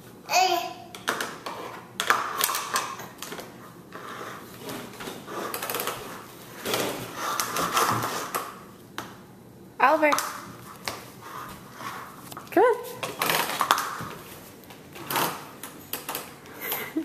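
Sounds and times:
plastic clacking on tile floor: 0.9s - 3.5s, 13.0s - 17.0s.

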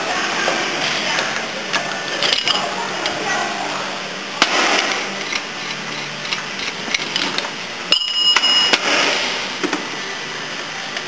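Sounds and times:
workshop noise: 0.0s - 11.0s
short high-pitched whine: 7.9s - 9.5s.

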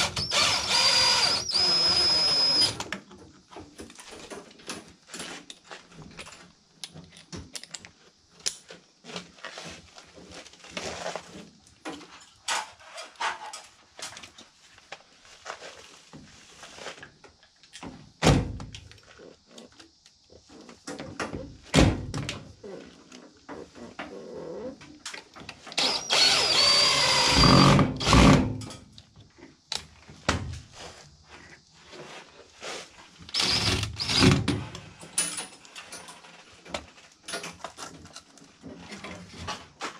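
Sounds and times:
cordless drill whining on sheet metal: 0.0s - 2.9s, 25.7s - 28.6s, 33.3s - 34.6s.

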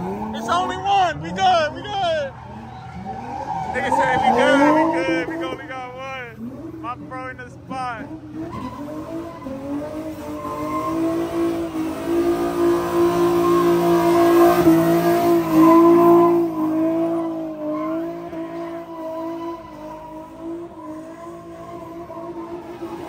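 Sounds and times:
car engine revving high: 0.0s - 23.0s
tyres squealing: 0.2s - 11.8s.

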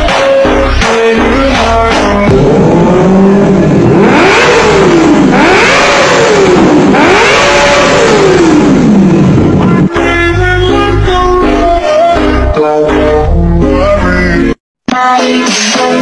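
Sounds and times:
motorcycle engine revving: 1.3s - 10.5s.

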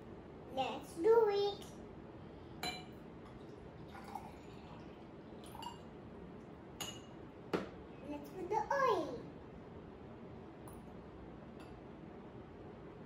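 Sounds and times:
glass tapping: 2.6s - 2.9s, 6.8s - 7.7s
water pouring into glass: 3.3s - 5.8s.

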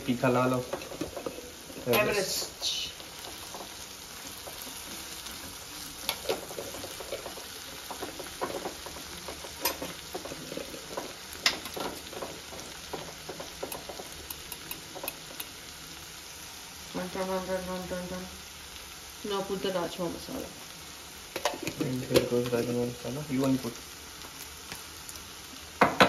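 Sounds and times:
sauce sizzling in oil: 0.0s - 26.0s
spoon scraping pan: 3.1s - 15.6s.

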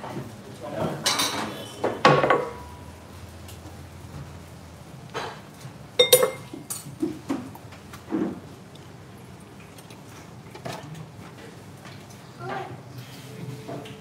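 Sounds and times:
dishes and utensils clinking: 0.8s - 2.8s, 5.1s - 7.5s.

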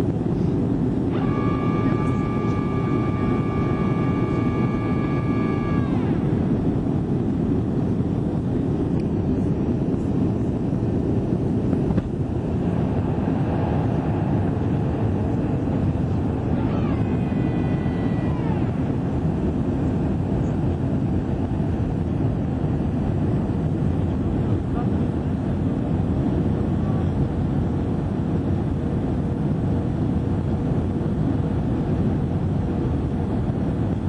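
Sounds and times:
airliner cabin roar: 0.0s - 34.0s
high tone falling in pitch: 1.1s - 6.6s, 16.5s - 19.0s.

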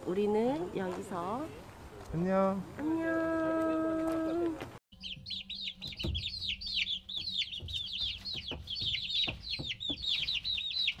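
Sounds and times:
baby chicks peeping: 4.9s - 11.0s.

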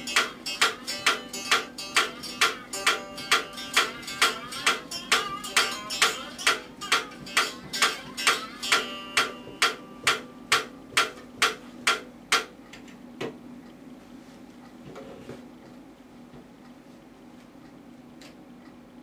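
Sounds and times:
one-string instrument twanging: 0.0s - 12.0s.

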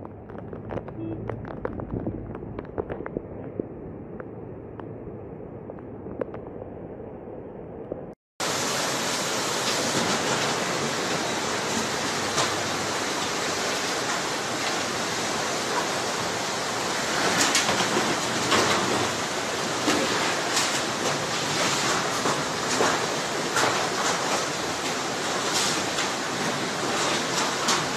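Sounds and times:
floodwater rushing: 8.4s - 27.9s.

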